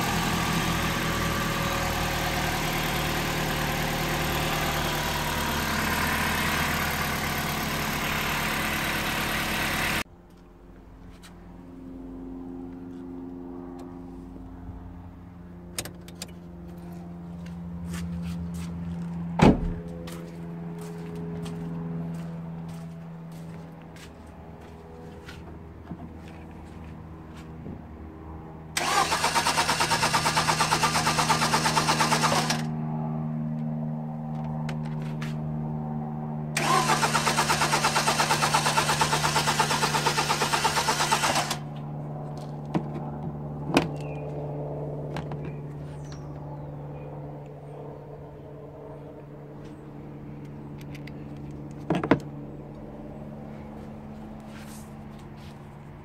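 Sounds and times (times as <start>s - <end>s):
starter motor cranking engine: 28.8s - 32.7s, 36.6s - 41.7s.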